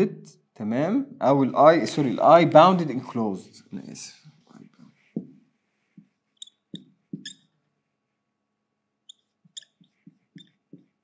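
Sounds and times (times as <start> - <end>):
marker squeaking on whiteboard: 4.7 - 7.8, 9.0 - 11.0.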